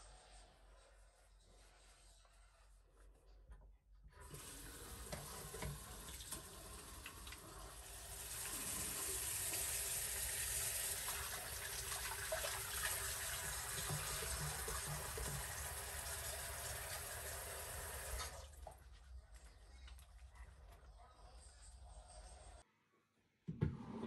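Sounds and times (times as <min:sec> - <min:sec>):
tap water splashing into sink: 0:04.8 - 0:07.4, 0:11.0 - 0:16.2.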